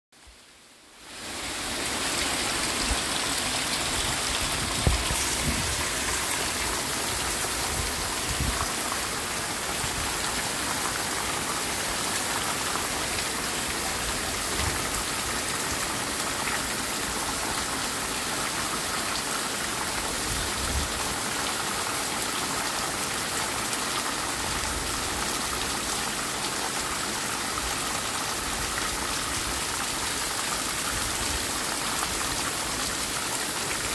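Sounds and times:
heavy rain pouring: 0.2 - 33.9
low rumbles of wind gusts: 2.7 - 8.8.

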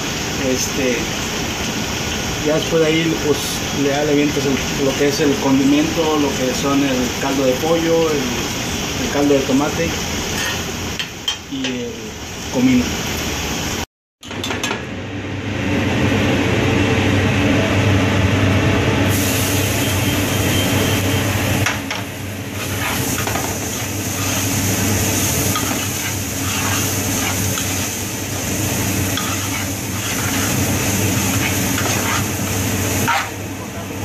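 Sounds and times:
metal spoon scraping pan: 25.5 - 27.9, 29.1 - 32.4, 33.0 - 33.4.

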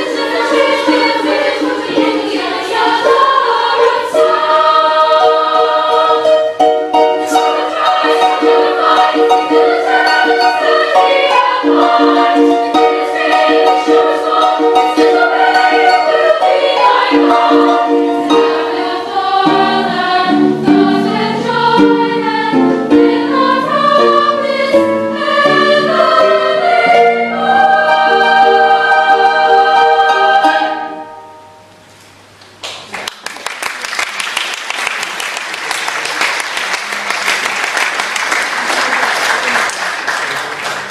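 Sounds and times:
girls choir singing: 0.0 - 31.6
harp accompaniment: 0.0 - 32.0.

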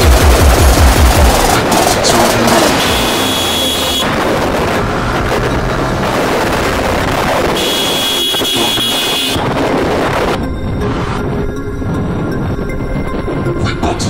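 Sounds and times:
motorcycle engine at low speed: 0.0 - 10.5
high steady tone: 2.2 - 4.1
wind noise on microphone: 4.0 - 13.9.

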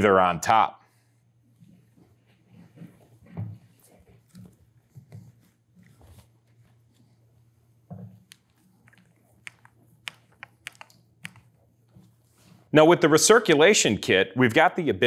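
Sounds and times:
small sharp clicks: 8.3 - 11.5.

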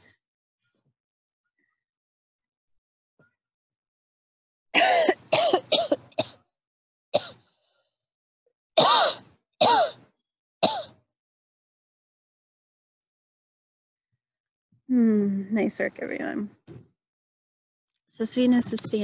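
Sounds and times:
woman coughing: 4.8 - 6.4, 8.8 - 10.0, 10.6 - 10.9.

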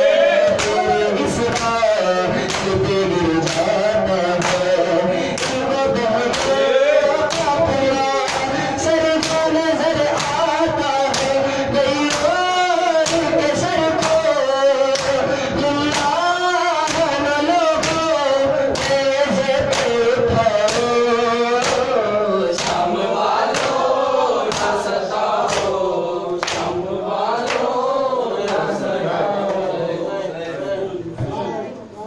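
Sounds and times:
men chanting in unison: 0.0 - 31.7
hands slapping chests: 0.5 - 0.9, 2.4 - 2.8, 4.4 - 4.7, 23.5 - 23.8, 26.4 - 26.7.

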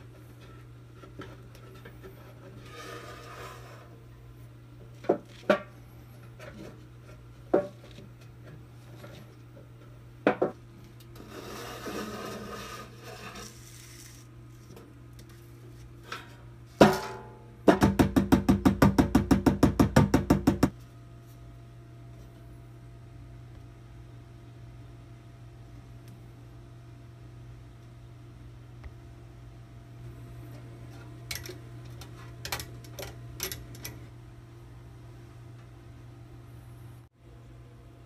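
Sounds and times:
metal scraping: 1.5 - 4.0, 11.2 - 14.3
hammer tapping sheet metal: 16.8 - 20.7.

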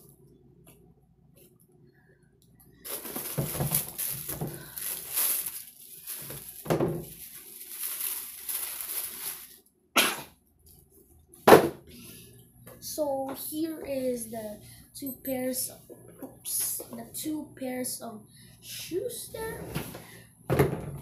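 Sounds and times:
plastic wrapping crinkling: 2.8 - 9.7.

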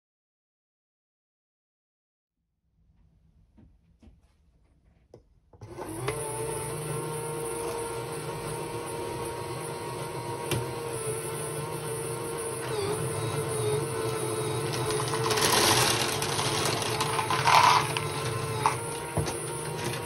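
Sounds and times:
toy electric motor whining: 12.4 - 20.0.

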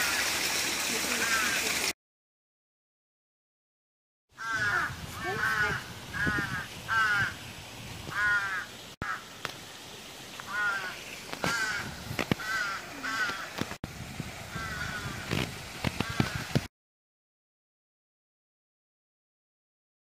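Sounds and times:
crows cawing: 1.1 - 1.7, 4.4 - 7.4, 8.1 - 9.4, 10.5 - 13.7, 14.5 - 15.4, 16.0 - 16.6.

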